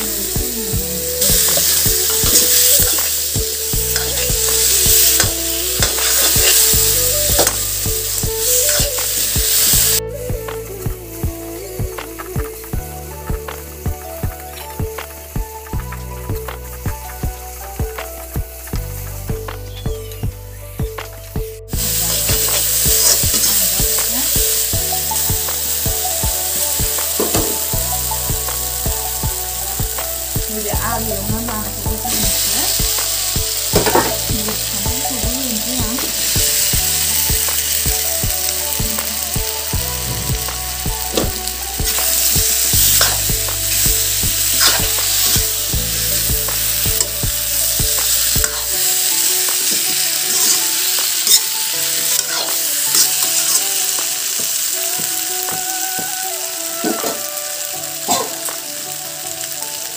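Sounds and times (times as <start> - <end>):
masala sizzling in a pan: 0.0 - 10.0, 21.7 - 59.9
background music with bass: 0.0 - 59.9.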